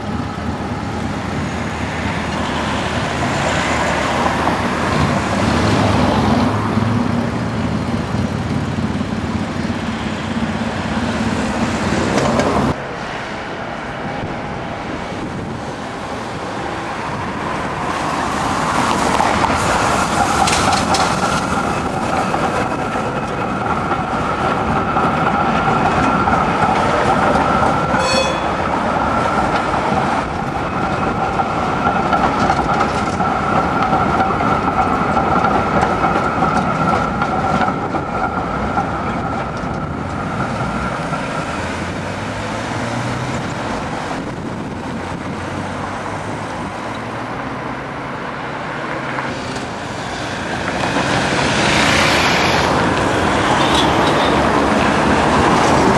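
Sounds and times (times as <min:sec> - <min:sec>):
road traffic: 0:00.0 - 0:55.9
tram passing with high whine: 0:00.0 - 0:55.9
tram wheels rumbling over rails: 0:00.0 - 0:55.9.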